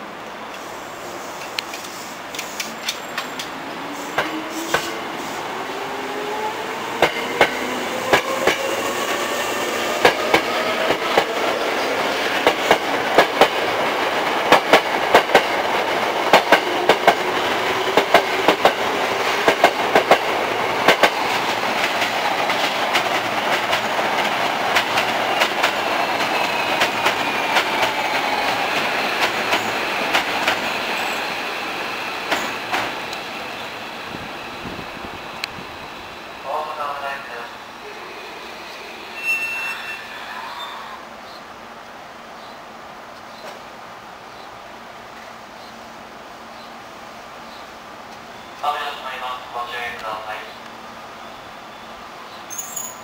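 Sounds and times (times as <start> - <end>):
wheels clacking over rail joints: 12.3 - 31.2.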